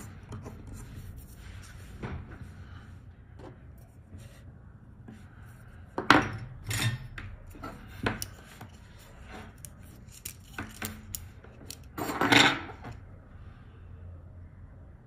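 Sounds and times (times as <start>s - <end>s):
tools clicking and knocking: 9.5s - 12.8s.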